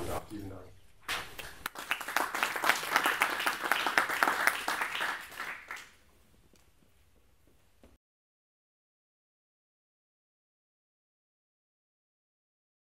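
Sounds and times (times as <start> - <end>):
audience applauding: 1.1 - 6.0.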